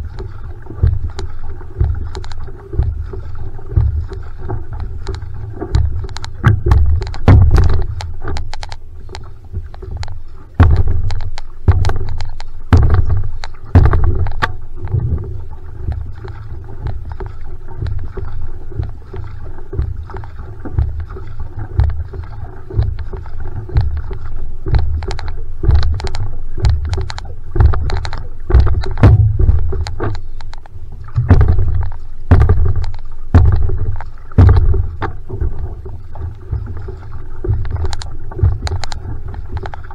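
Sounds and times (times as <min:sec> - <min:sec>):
paddle strokes splashing water: 0:00.0 - 0:39.9
sharp water clicks: 0:00.0 - 0:39.9
low rumbling surges: 0:28.4 - 0:36.8.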